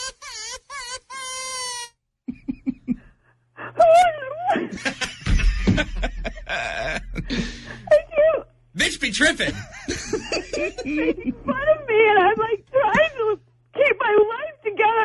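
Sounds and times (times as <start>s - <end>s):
woman crying over a phone: 3.6s - 4.7s
studio audience laughter: 9.6s - 11.6s.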